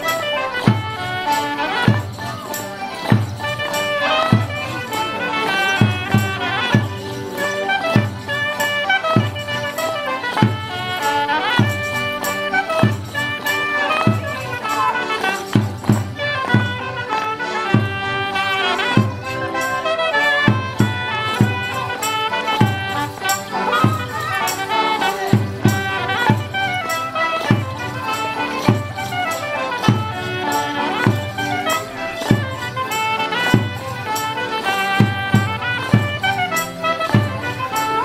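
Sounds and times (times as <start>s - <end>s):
folk band playing: 0.0s - 38.0s
drum beat: 22.5s - 26.8s, 34.8s - 37.6s.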